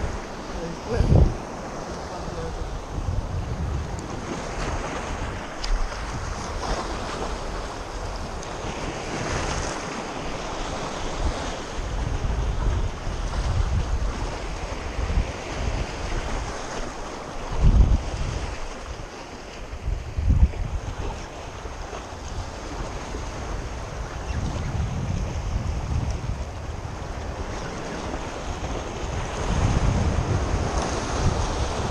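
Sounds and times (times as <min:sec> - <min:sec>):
wind buffeting microphone: 0:00.0 - 0:31.9
waves washing against rocks: 0:24.9 - 0:31.9.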